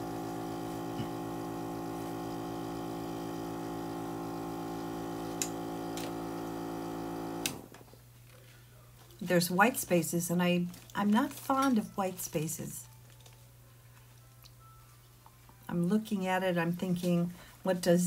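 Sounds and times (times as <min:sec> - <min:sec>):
small compressor motor humming: 0:00.0 - 0:07.7.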